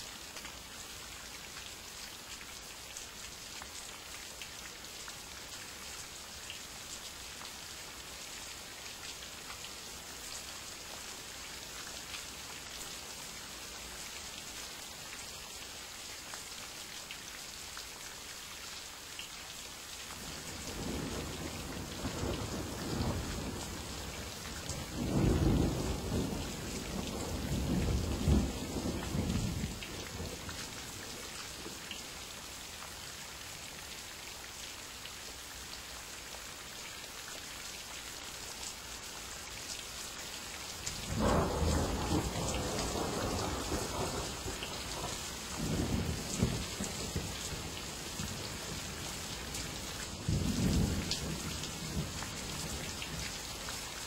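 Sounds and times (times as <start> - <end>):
rain hissing: 40.4 - 54.0
rolling thunder: 41.1 - 44.4.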